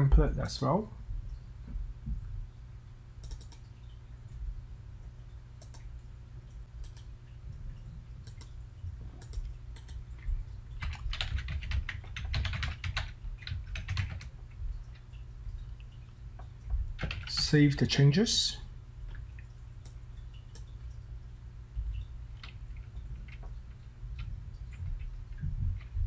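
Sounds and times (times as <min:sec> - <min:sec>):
steady low hum: 0:00.0 - 0:26.0
clicks: 0:03.2 - 0:03.7, 0:05.6 - 0:05.9, 0:06.8 - 0:07.1, 0:08.2 - 0:08.6, 0:09.2 - 0:10.0
fast typing on keyboard: 0:10.8 - 0:15.0, 0:17.0 - 0:17.6, 0:22.4 - 0:26.0.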